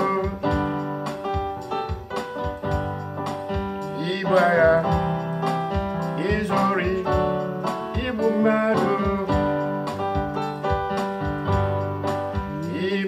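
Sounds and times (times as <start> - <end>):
person singing: 0.0 - 1.0, 3.9 - 10.1, 12.4 - 13.0
electronic keyboard playing: 0.0 - 13.0.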